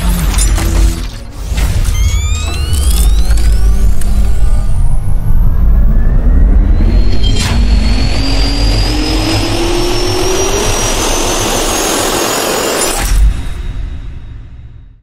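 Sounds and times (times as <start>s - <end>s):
jet turbine roar and whine: 2.2s - 13.1s
sharp hit: 6.6s - 14.8s.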